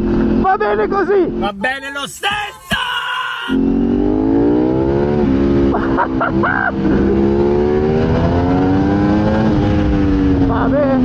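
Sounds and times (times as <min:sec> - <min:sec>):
motorcycle engine accelerating: 0:03.6 - 0:11.0.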